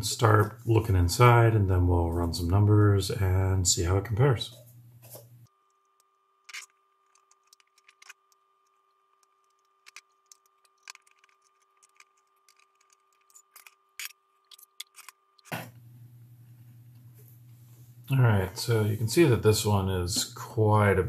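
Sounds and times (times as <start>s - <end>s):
circuit board handled in metal case: 6.5s - 8.4s, 9.2s - 15.7s.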